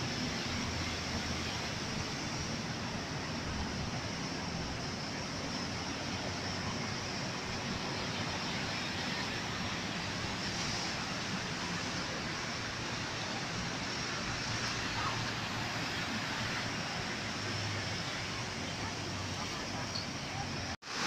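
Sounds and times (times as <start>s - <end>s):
sea surf washing over rocks: 0.0s - 21.0s.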